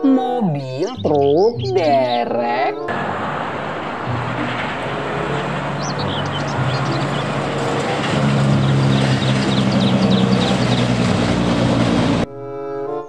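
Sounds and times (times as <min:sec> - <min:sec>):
high chirps: 0:00.0 - 0:02.3, 0:04.0 - 0:11.0
traffic noise: 0:00.8 - 0:12.3
truck engine drone: 0:02.8 - 0:12.3.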